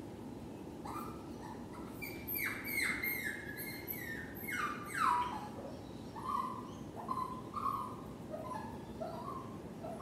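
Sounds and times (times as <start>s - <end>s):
dog whining: 0.8s - 10.0s.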